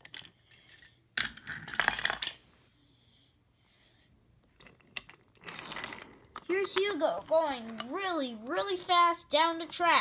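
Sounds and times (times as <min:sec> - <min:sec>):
wooden toy train pieces clattering: 0:00.0 - 0:02.4, 0:04.5 - 0:07.0.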